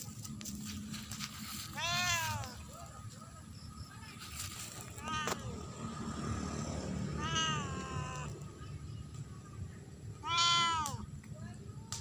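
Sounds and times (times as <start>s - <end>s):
cat meowing: 1.8s - 2.6s, 5.0s - 5.5s, 7.2s - 8.3s, 10.2s - 11.0s.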